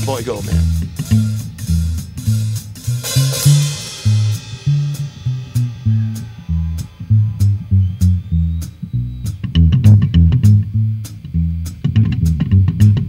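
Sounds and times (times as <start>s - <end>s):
cymbal crash: 0.0s - 7.6s
drum kit: 0.0s - 13.0s
slapped double bass: 0.0s - 13.0s.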